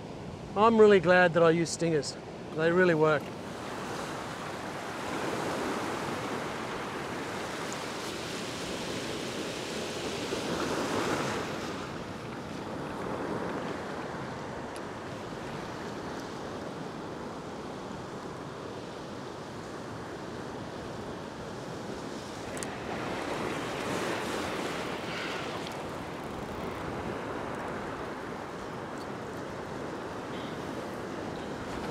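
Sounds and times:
ocean surf breaking on rock: 0:21.6 - 0:31.9.

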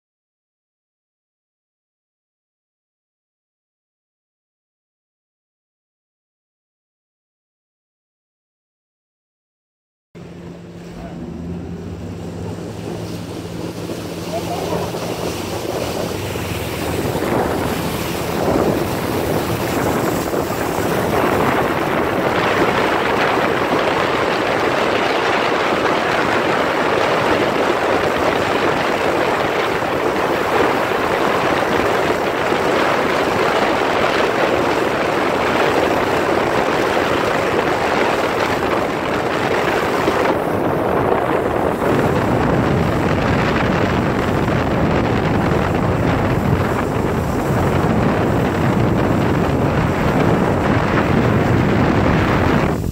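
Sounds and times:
churning wake water: 0:10.2 - 0:52.9
wind rushing on microphone: 0:10.8 - 0:52.9.

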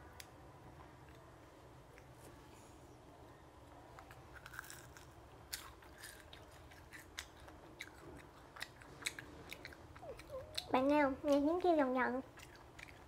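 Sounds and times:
chewing crunchy fried food: 0:04.0 - 0:13.0.

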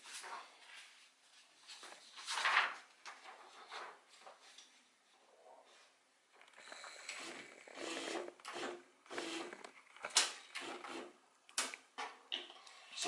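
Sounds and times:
typewriter feed motor bursts: 0:06.6 - 0:11.1.

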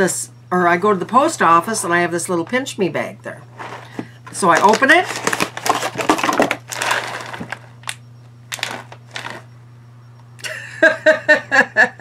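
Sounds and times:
plastic pouch crinkling: 0:03.6 - 0:09.4.

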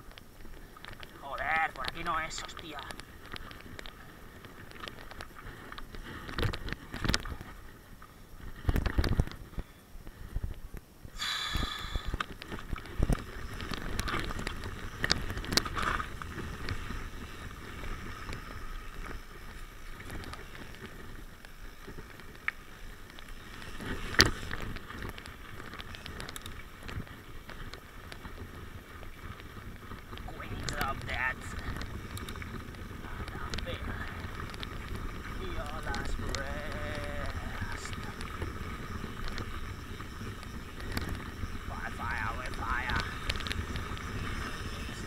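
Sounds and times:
bike tyres on gravel: 0:00.0 - 0:45.0
bike rattling and knocking: 0:12.3 - 0:45.0
wind on microphone: 0:28.1 - 0:45.0.

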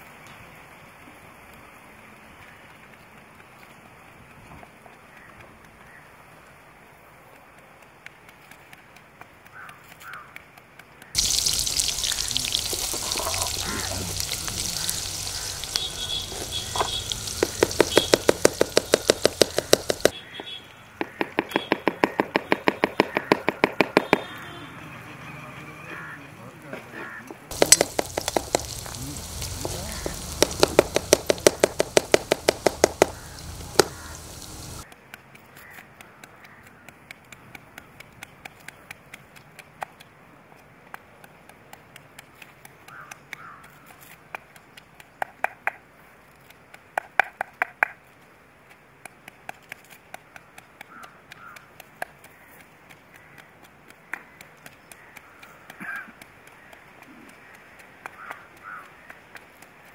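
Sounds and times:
crow cawing: 0:09.5 - 0:10.4, 0:11.2 - 0:18.1, 0:21.0 - 0:23.6, 0:25.9 - 0:26.2, 0:27.0 - 0:27.4, 0:28.0 - 0:30.7, 0:32.8 - 0:34.8, 0:42.9 - 0:43.7, 0:50.9 - 0:51.7, 0:58.1 - 0:59.2
onions sizzling in hot oil: 0:11.2 - 0:20.1, 0:27.5 - 0:34.8.

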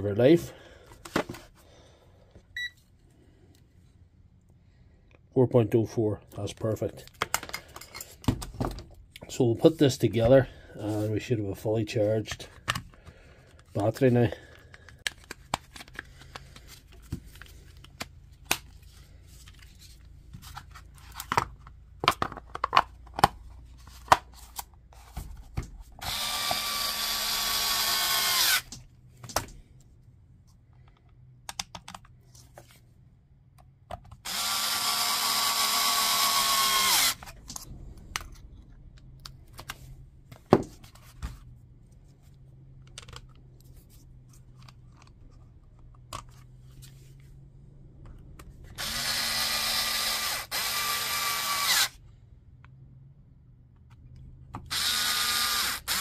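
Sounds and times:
plastic parts clicking: 0:20.8 - 0:23.4, 0:30.7 - 0:32.2, 0:42.8 - 0:43.4
power drill driving screws: 0:26.0 - 0:28.7, 0:34.2 - 0:37.3, 0:48.8 - 0:52.0, 0:54.7 - 0:56.0.

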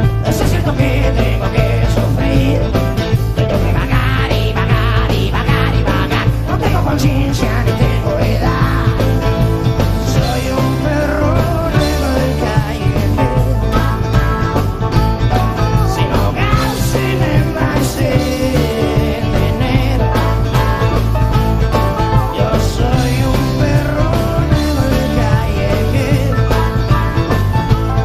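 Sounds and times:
acoustic guitars strumming: 0:00.0 - 0:28.0
bass: 0:00.0 - 0:28.0
drums: 0:00.0 - 0:28.0.

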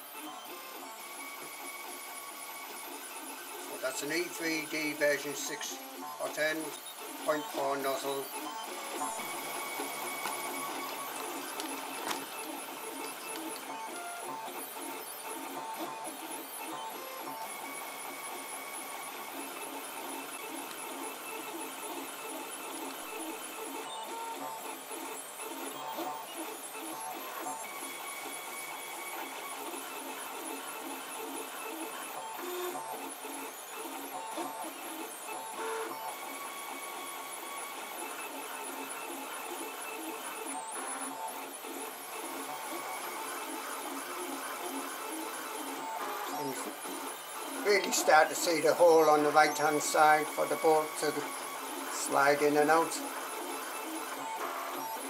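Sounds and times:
stepper motors whirring: 0:03.2 - 0:26.3.

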